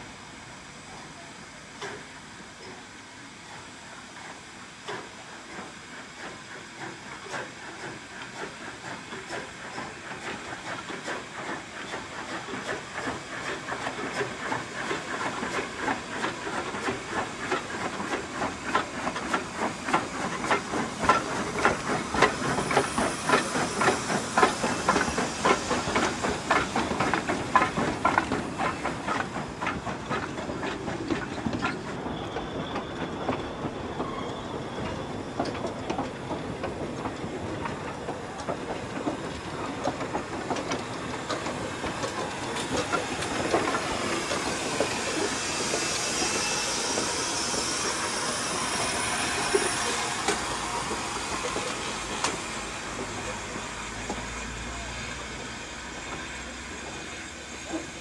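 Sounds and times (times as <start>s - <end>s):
hissing steam: 0.0s - 58.0s
train coaches rolling past: 0.0s - 58.0s
steam locomotive exhaust chuffs: 1.6s - 58.0s.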